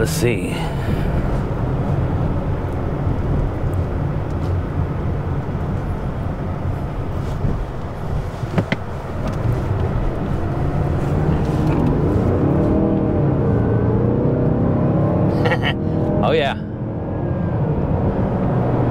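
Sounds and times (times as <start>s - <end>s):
car engine and road noise: 0.0s - 18.9s.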